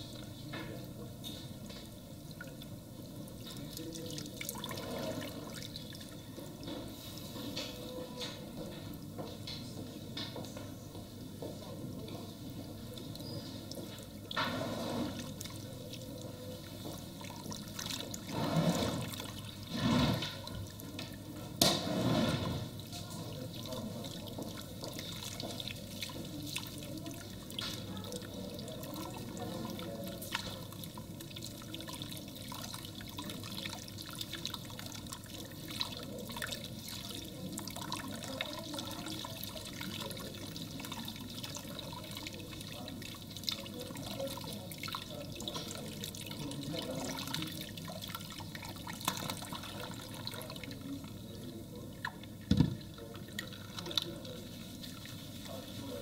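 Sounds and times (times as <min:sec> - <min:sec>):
water spraying into sink basin: 0:12.8 - 0:56.0.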